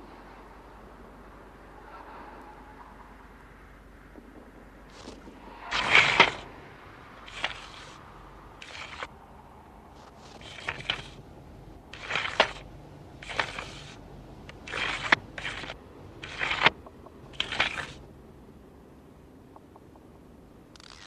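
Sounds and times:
blade swishing with clicks: 4.9s - 6.5s, 7.2s - 8.0s, 8.6s - 9.1s, 10.0s - 11.2s, 11.9s - 18.0s, 20.8s - 21.0s.

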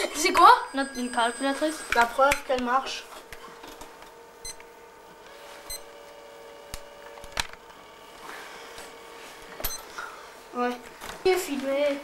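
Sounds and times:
faint steady hum: 0.0s - 12.0s
calculator beeps and key clicks: 0.2s - 2.8s, 5.7s - 5.9s.

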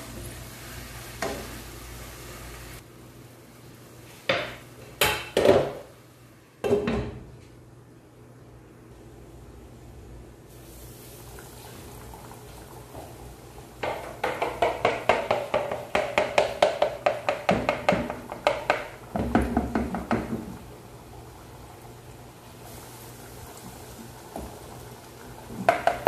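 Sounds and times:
chicken deep-frying in oil: 18.4s - 26.0s.

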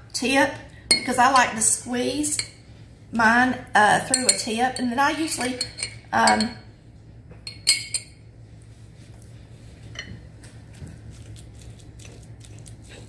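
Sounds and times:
metal spoon clinking against glass: 5.4s - 6.6s, 7.5s - 8.1s.

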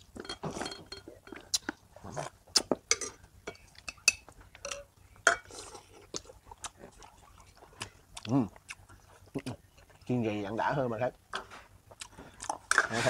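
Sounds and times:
cutlery clinking on ceramic bowls: 0.2s - 1.4s, 2.9s - 5.6s.

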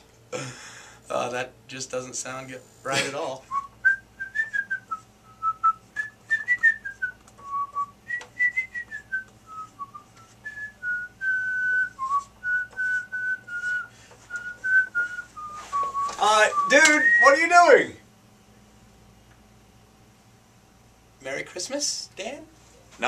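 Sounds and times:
man whistling a tune: 3.5s - 17.3s.

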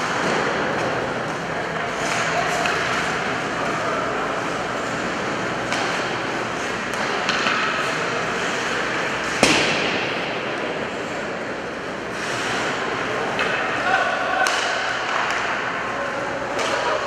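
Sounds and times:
clicks of sticks and puck: 0.0s - 3.3s, 4.4s - 9.9s, 12.1s - 13.8s, 14.4s - 15.8s, 16.5s - 17.0s
skates on ice: 0.0s - 17.0s
sharp echoing crack: 9.3s - 10.8s.

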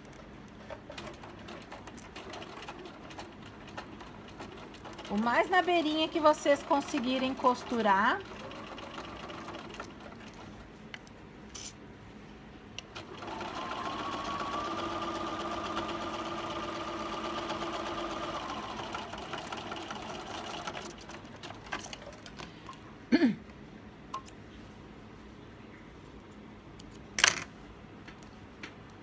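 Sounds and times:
sewing machine motor running: 0.9s - 10.3s, 13.0s - 22.1s.

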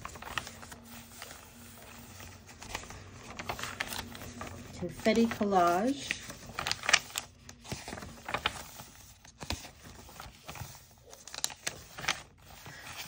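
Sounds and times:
paper pages turning: 0.0s - 13.0s.

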